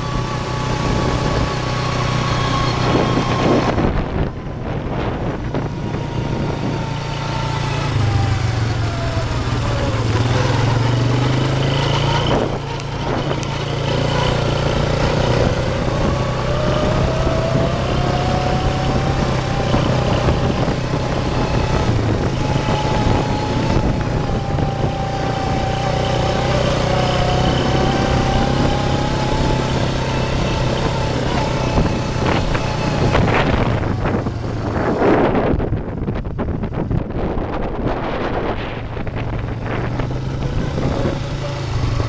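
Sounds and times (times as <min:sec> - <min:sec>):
atv engine running: 0:00.0 - 0:42.0.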